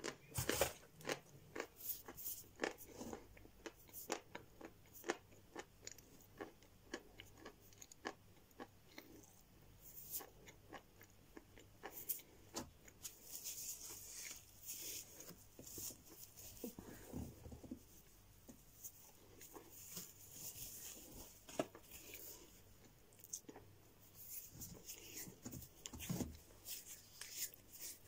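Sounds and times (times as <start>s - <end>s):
person chewing crunchy chalk: 0.0s - 13.0s.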